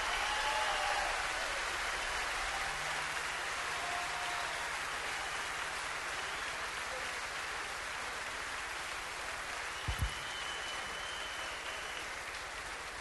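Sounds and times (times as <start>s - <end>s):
audience applauding: 0.0s - 13.0s
short low thumps: 9.9s - 10.2s.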